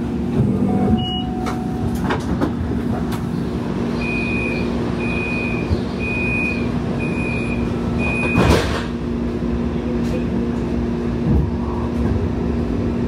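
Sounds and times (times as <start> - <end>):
high electronic warning beeps: 0.8 - 1.8, 4.0 - 8.4.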